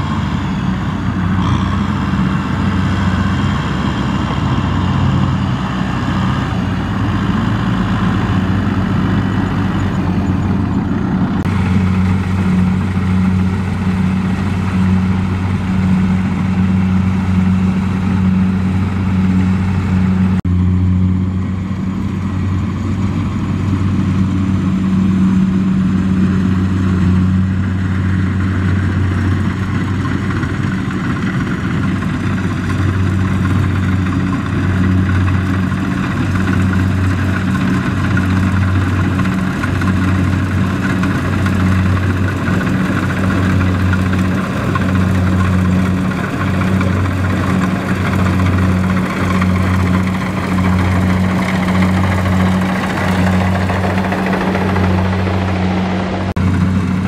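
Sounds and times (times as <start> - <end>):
combine harvester engine droning: 0.0 - 57.0.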